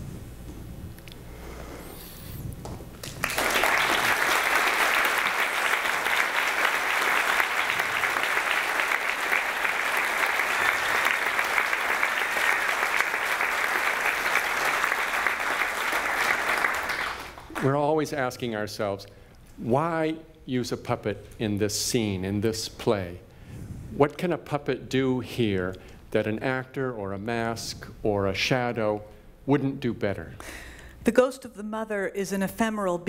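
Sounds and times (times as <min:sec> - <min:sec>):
audience applauding: 0:03.0 - 0:17.8.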